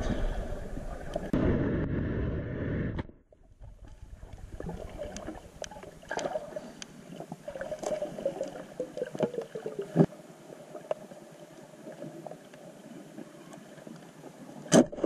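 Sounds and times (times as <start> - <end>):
underwater clicks and crackles: 0.0 - 1.4, 3.5 - 10.1, 10.7 - 11.2, 11.8 - 15.0
underwater gurgling water: 0.0 - 2.2, 3.4 - 15.0.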